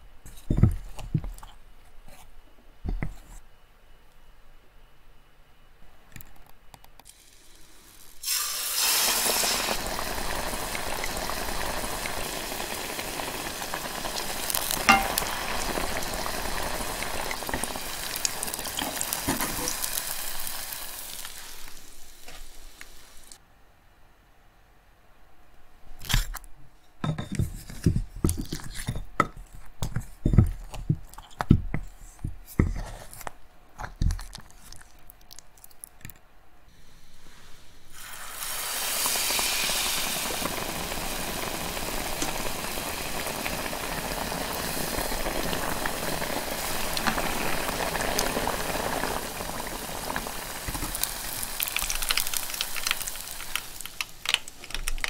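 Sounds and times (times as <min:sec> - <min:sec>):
food sizzling in deep-frying oil: 0:07.1 - 0:23.4, 0:37.5 - 0:54.1
chopsticks tapping: 0:14.9 - 0:15.3
metal tongs tapping glass dish: 0:14.9 - 0:15.3.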